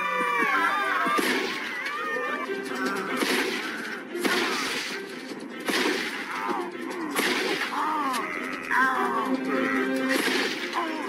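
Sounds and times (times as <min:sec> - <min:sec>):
background music: 0:00.0 - 0:11.0
shotgun blasts: 0:03.2 - 0:05.0, 0:05.6 - 0:06.5, 0:07.2 - 0:07.8, 0:10.1 - 0:10.8.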